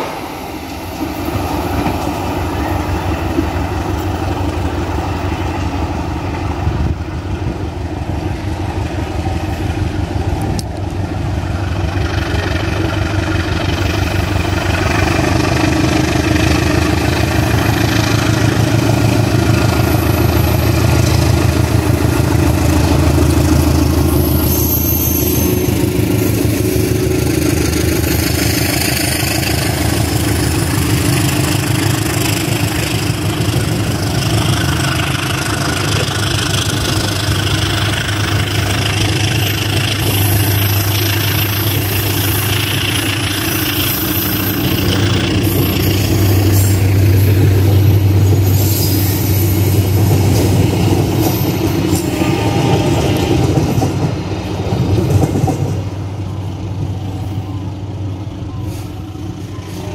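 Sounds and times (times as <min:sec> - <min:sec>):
train wheels rumbling on rails: 0:00.0 - 0:59.9.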